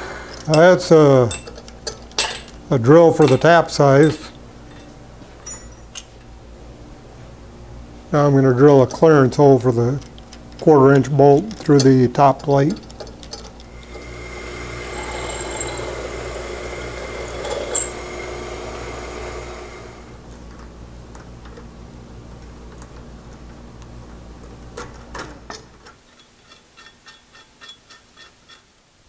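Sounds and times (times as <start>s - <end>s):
drill press drilling metal: 0.0s - 0.7s, 13.7s - 20.2s.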